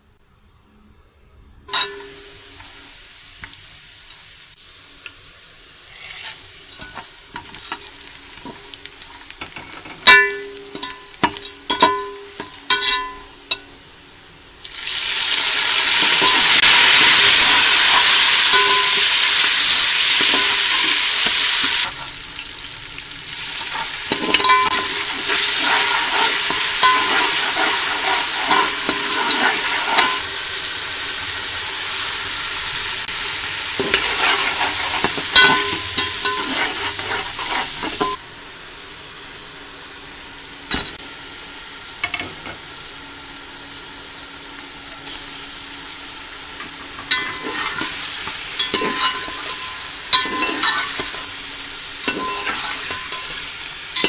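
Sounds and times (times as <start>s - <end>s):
food sizzling in hot oil: 1.7s - 54.0s
spoon stirring and scraping pot: 5.9s - 8.6s, 9.4s - 13.6s, 23.6s - 30.3s, 33.8s - 38.2s, 47.0s - 51.3s, 52.0s - 53.4s
spoon clinking on metal pot: 10.1s - 13.7s, 18.5s - 19.0s, 23.7s - 30.2s, 33.8s - 36.7s, 48.6s - 51.2s, 52.0s - 53.4s.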